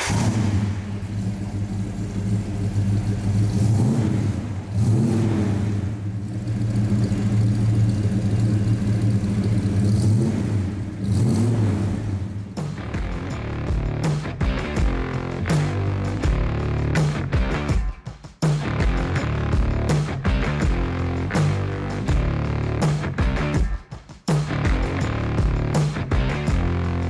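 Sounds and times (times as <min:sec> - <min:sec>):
car engine idling and revving: 0:00.0 - 0:17.9, 0:18.6 - 0:23.7, 0:24.3 - 0:27.0
music: 0:11.4 - 0:27.0.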